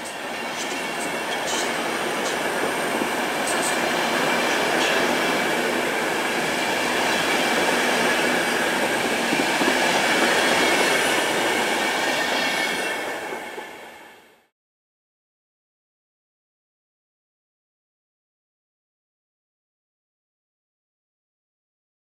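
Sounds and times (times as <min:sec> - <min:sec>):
train wheels rumbling on rail: 0:00.0 - 0:14.4.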